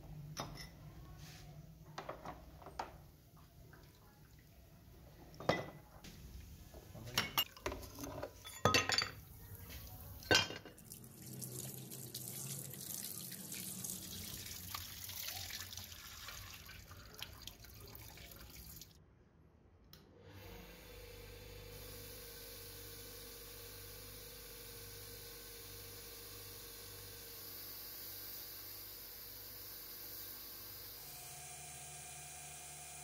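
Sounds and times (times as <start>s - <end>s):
bench buffer motor humming: 20.4s - 33.0s.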